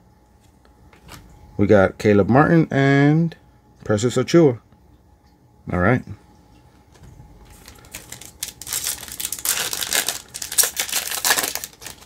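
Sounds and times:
plastic wrapper crinkling and tearing: 0:07.4 - 0:12.0.

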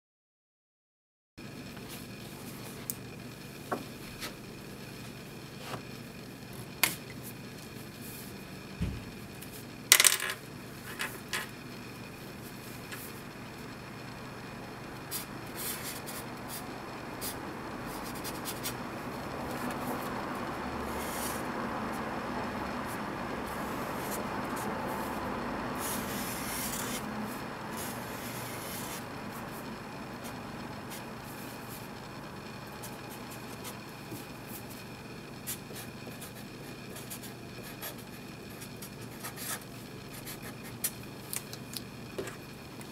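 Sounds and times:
marker scratching on paper: 0:15.1 - 0:16.6, 0:17.2 - 0:18.8, 0:20.9 - 0:22.1, 0:22.8 - 0:25.2, 0:25.8 - 0:27.1, 0:27.8 - 0:29.6, 0:35.5 - 0:40.9.

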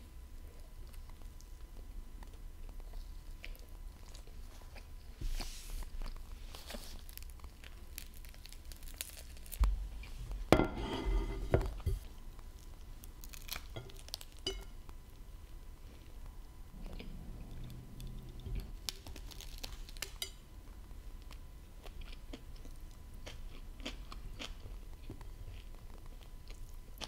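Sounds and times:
chewing: 0:00.5 - 0:05.2, 0:16.0 - 0:20.4, 0:21.2 - 0:27.0
bread crust crunching: 0:05.8 - 0:20.4.

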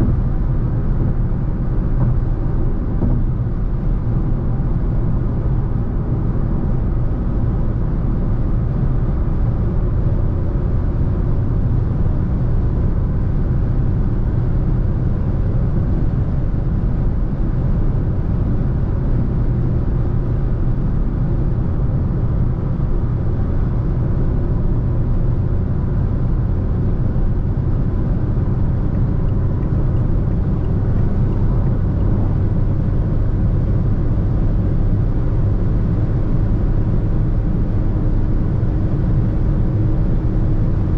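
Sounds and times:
car engine drone: 0:00.0 - 0:40.9
tyre and road noise: 0:26.4 - 0:34.4.

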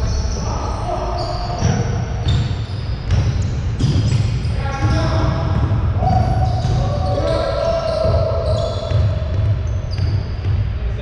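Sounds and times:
basketball bouncing on hardwood: 0:03.0 - 0:07.2, 0:08.0 - 0:10.7.

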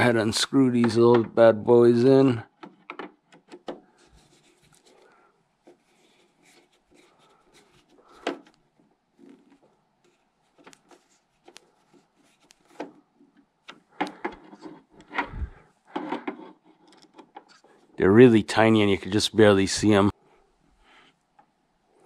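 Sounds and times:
screwdriver scraping: 0:13.7 - 0:17.8.

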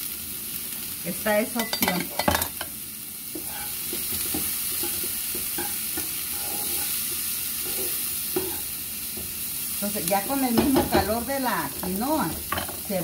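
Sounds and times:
vegetables sizzling in oil: 0:00.0 - 0:13.0
spatula scraping a pan: 0:03.3 - 0:08.8.

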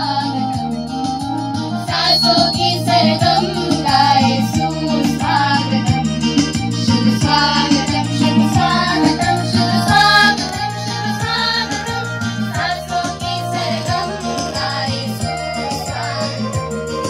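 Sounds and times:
music with steady beat: 0:00.0 - 0:17.0
girls singing together: 0:01.9 - 0:05.6, 0:07.2 - 0:16.7.

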